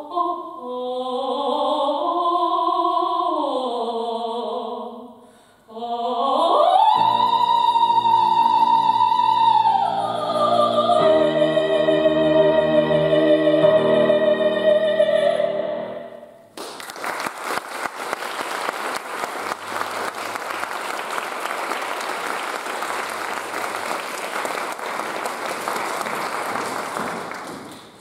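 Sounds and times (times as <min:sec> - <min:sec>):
woman singing sustained note: 0:05.7 - 0:16.2
piano: 0:06.7 - 0:16.4
audience applauding: 0:16.6 - 0:28.0.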